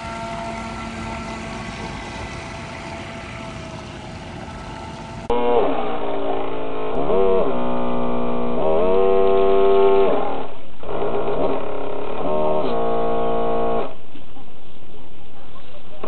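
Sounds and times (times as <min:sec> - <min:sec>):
water noise: 0:00.0 - 0:05.3
electric motor whine: 0:00.0 - 0:14.0.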